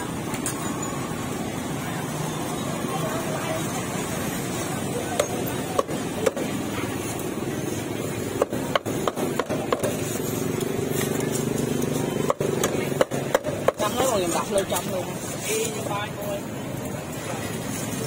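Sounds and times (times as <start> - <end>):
cleaver chopping through ribs: 8.3 - 10.0, 12.2 - 14.0.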